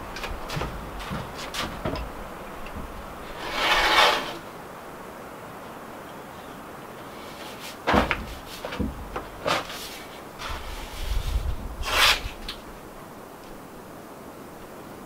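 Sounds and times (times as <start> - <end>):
rubbing with low thumps: 0.0 - 4.4, 7.4 - 12.4
knocks and scrapes on a tube: 0.2 - 2.1, 7.4 - 12.4.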